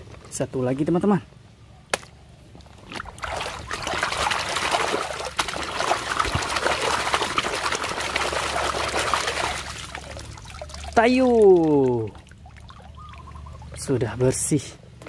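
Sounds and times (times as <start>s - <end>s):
water sloshing in a basin: 2.8s - 14.6s.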